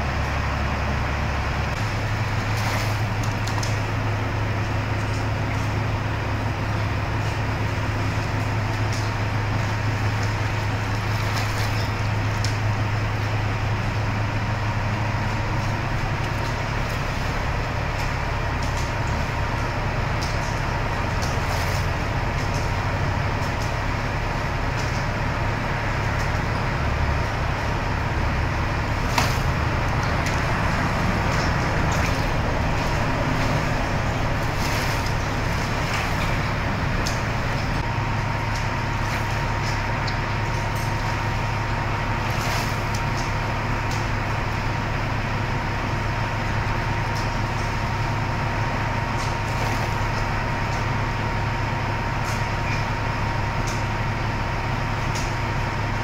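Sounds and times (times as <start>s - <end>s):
large motor droning: 0.0s - 56.0s.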